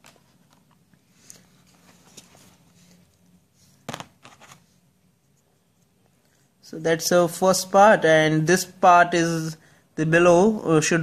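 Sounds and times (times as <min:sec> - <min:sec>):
faint handling of plastic parts: 0:00.0 - 0:06.6.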